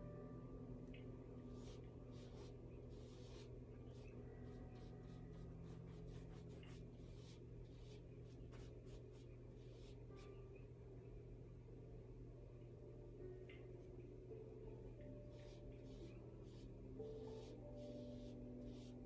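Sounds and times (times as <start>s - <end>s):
low steady hum: 0.0s - 19.0s
paintbrush strokes on canvas: 1.5s - 10.4s, 15.2s - 19.0s.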